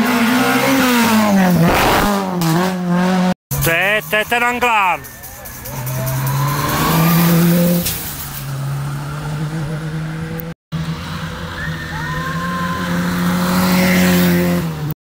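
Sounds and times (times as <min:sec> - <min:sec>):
rally car engine passing: 0:05.0 - 0:14.9.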